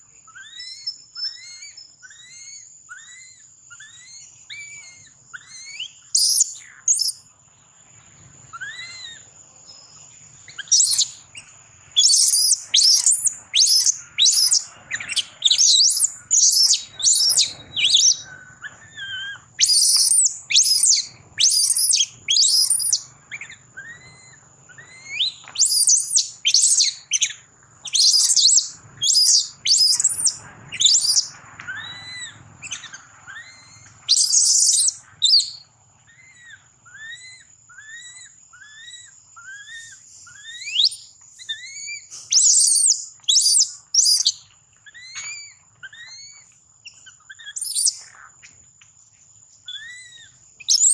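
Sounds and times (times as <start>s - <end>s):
baby monkey shrill cries: 0.3s - 7.2s, 8.5s - 9.2s, 10.6s - 11.2s, 12.0s - 48.2s, 49.7s - 50.9s
monkey soft rising-and-falling calls: 8.5s - 9.2s, 27.9s - 43.6s.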